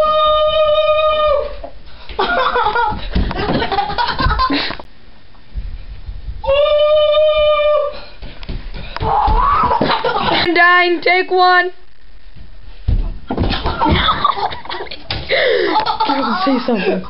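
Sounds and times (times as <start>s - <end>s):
high held woo call: 0.0s - 1.6s, 6.4s - 8.0s
boys laughing and shouting: 2.1s - 4.8s, 9.0s - 10.6s, 13.5s - 17.0s.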